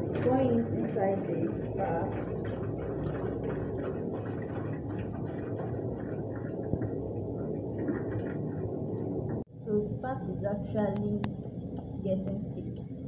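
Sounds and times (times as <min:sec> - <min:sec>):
water pouring into a pot: 0:00.0 - 0:09.2
spatula stirring: 0:00.0 - 0:09.4
low hum: 0:00.0 - 0:13.0.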